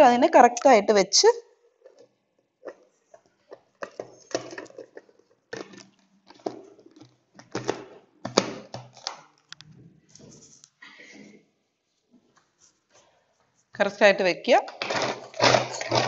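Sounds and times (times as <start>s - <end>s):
plastic clicks and rattles: 2.7s - 9.8s.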